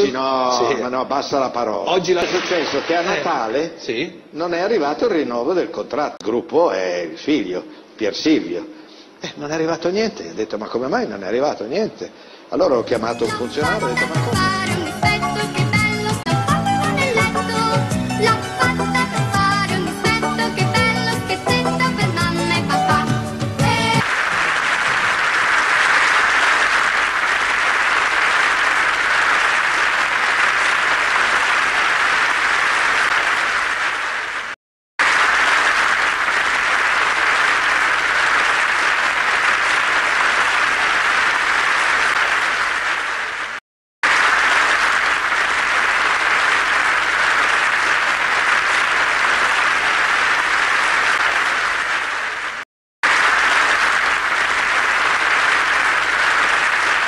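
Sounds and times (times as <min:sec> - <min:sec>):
audience applauding: 0:23.7 - 0:57.0.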